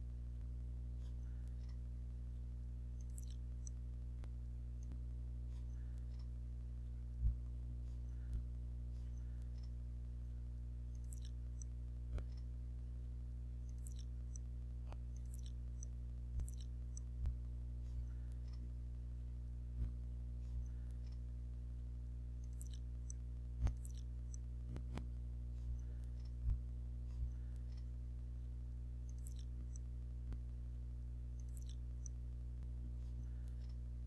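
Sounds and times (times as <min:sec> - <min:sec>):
steady low hum: 0:00.0 - 0:34.0
faint clicks: 0:00.4 - 0:09.8, 0:10.9 - 0:12.5, 0:13.6 - 0:18.7, 0:22.4 - 0:28.0, 0:29.0 - 0:30.5, 0:31.3 - 0:33.8.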